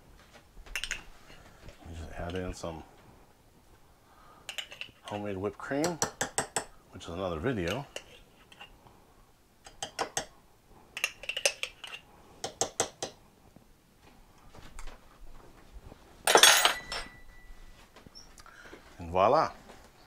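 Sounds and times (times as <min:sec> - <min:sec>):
brief ringing tone: 0:16.9 - 0:17.7.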